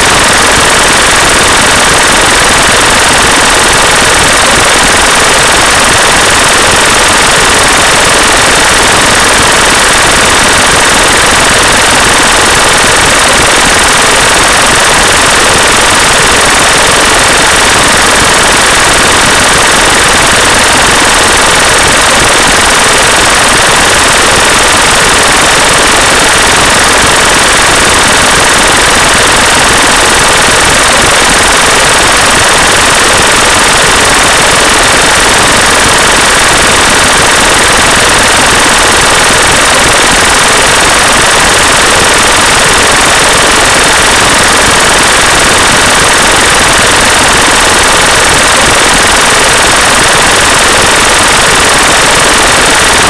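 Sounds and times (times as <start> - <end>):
loud steady noise: 0.0 - 53.0.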